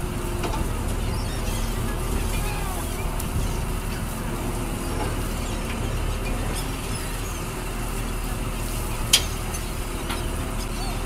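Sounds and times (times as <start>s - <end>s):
boat engine drone: 0.0s - 11.0s.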